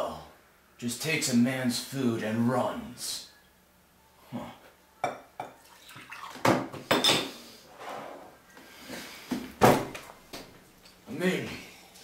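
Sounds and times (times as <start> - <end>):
glassware clinking: 5.0 - 7.3.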